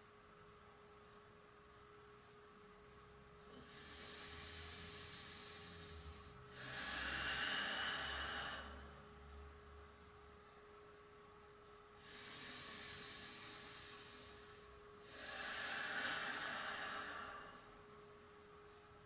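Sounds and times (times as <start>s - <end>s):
faint steady hum: 0.0s - 19.0s
person breathing slowly: 3.5s - 9.2s, 12.0s - 17.9s.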